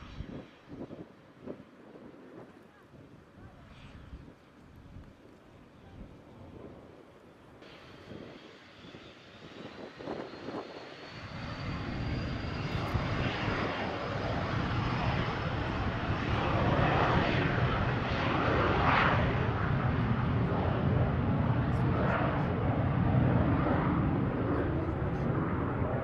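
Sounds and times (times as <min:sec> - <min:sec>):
jet engines roaring on departure: 0:06.6 - 0:26.0.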